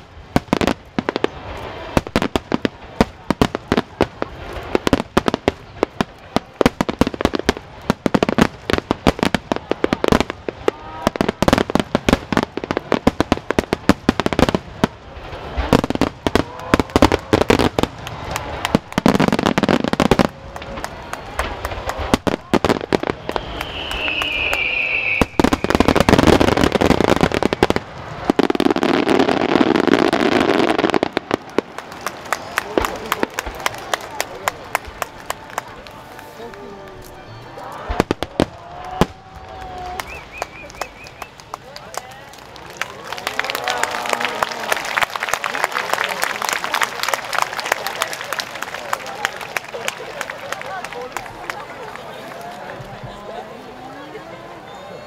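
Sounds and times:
fireworks bursting: 0.0s - 41.7s
falling firework whistle: 22.9s - 29.0s, 39.8s - 41.3s.

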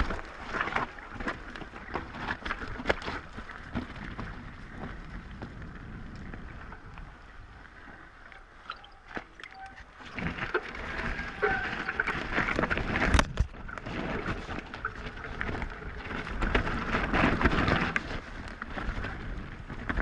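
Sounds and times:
bike rattling and knocking: 0.0s - 6.4s, 10.1s - 20.0s
bike tyres rolling on dirt: 0.0s - 20.0s
wind rushing over microphone: 9.9s - 20.0s.

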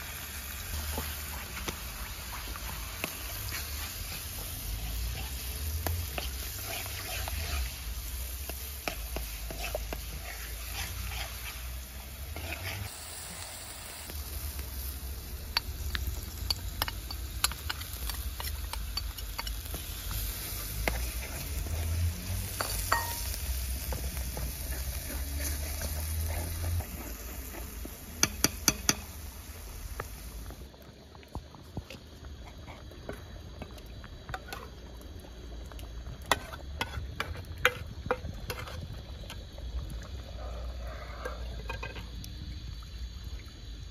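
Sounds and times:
oil sizzling in a pot: 0.0s - 43.9s
spoon scraping metal pot: 12.3s - 12.9s.

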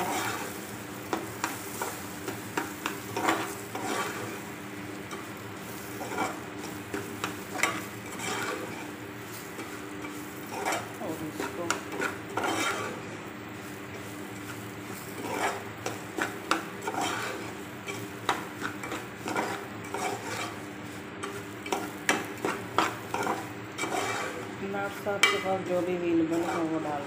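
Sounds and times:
faint sizzle: 0.0s - 27.0s
metal spoon scraping a pot: 3.1s - 4.4s, 7.6s - 8.9s, 9.6s - 13.0s, 15.2s - 20.6s, 21.2s - 27.0s.

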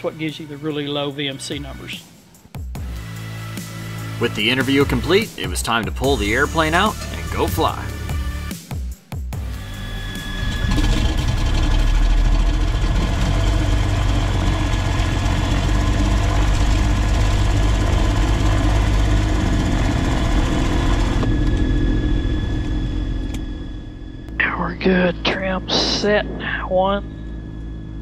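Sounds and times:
aircraft piston engines idling: 2.9s - 8.0s, 9.4s - 24.0s.

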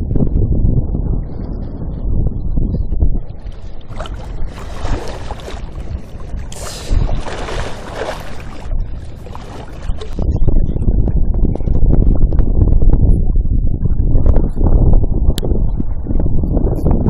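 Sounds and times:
wind buffeting microphone: 0.0s - 17.0s
waves splashing against breakwater: 3.6s - 10.2s.

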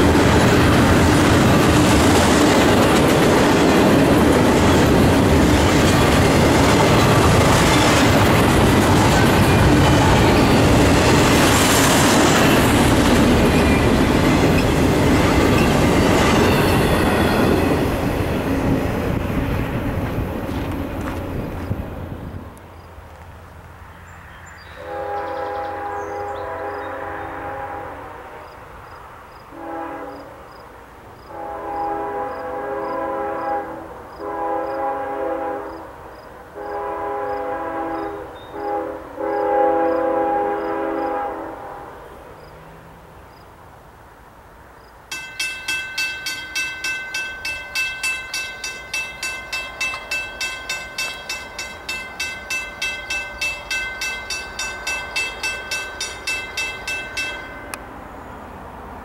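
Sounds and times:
crossing warning bell ringing: 12.2s - 18.8s, 45.1s - 58.3s
locomotive air horn blasts: 24.8s - 28.4s, 29.5s - 30.4s, 31.3s - 36.0s, 36.6s - 42.1s.

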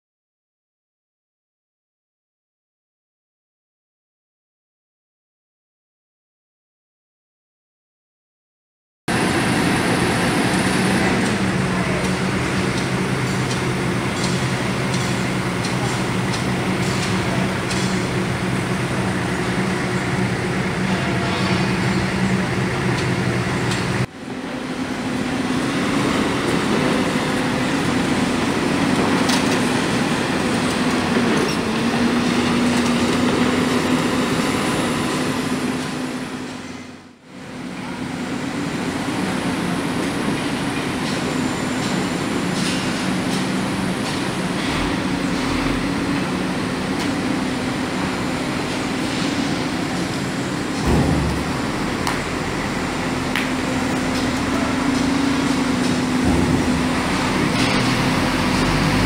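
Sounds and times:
engine drone: 9.1s - 59.0s
heavy diesel machinery running: 9.1s - 59.0s.

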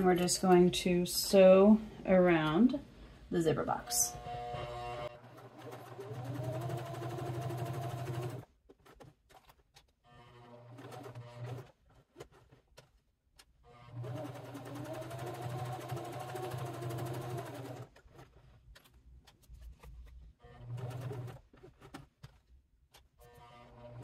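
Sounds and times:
sewing machine stitching: 4.1s - 12.6s, 13.7s - 18.4s, 20.4s - 22.1s.

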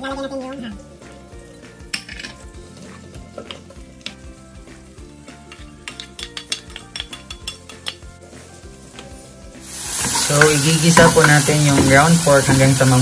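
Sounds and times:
bacon sizzling in a frying pan: 0.0s - 13.0s
plastic spatula tapping and scraping: 3.3s - 4.2s.

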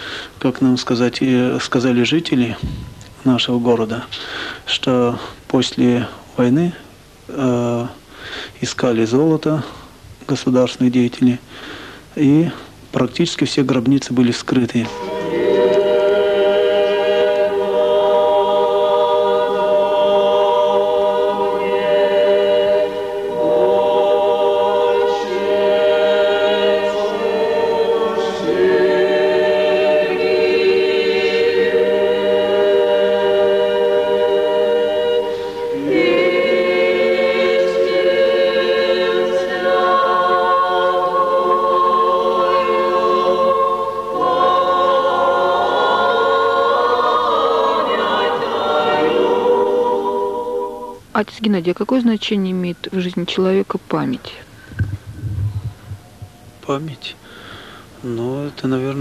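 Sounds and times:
women's choir chanting: 14.9s - 51.0s.

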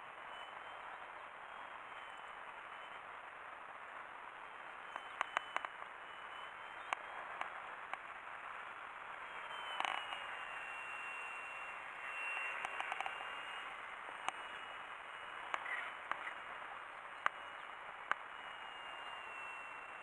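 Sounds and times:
rc plane motor whining: 9.3s - 20.0s
sharp clicks: 12.4s - 14.4s.

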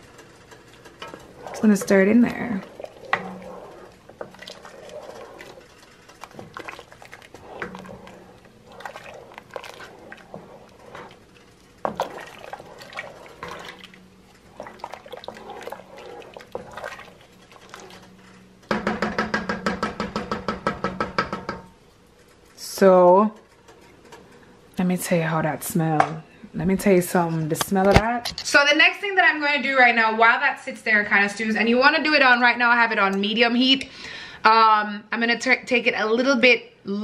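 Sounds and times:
spoon stirring thick stew: 0.0s - 21.5s
spoon scraping and tapping pot: 0.1s - 21.7s.

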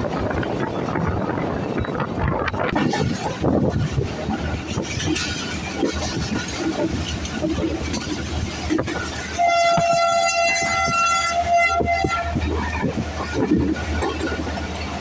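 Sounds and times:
train rumbling: 0.0s - 15.0s
locomotive horn: 9.2s - 12.9s.

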